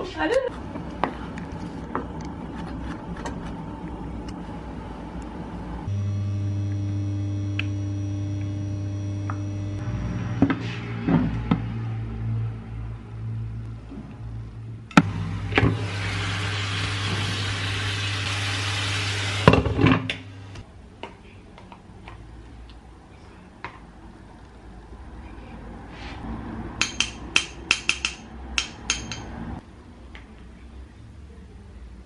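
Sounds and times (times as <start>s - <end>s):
electrical hum: 0.5s - 11.6s.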